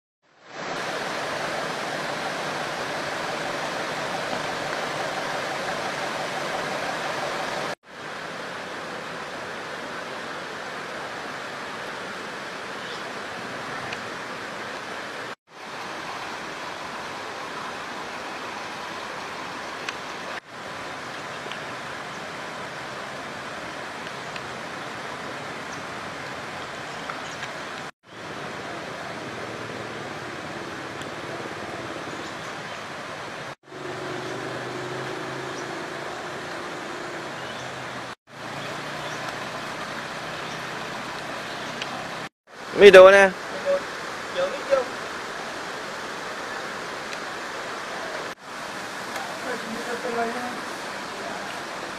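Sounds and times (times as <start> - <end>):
steady rushing noise: 0.3 - 9.5.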